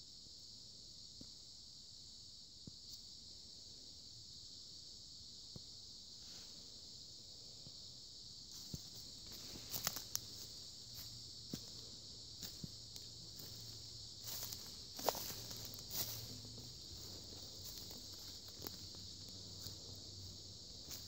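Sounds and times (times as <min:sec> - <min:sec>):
insect chorus: 0:00.0 - 0:21.0
footsteps crunching on forest floor: 0:08.5 - 0:21.0.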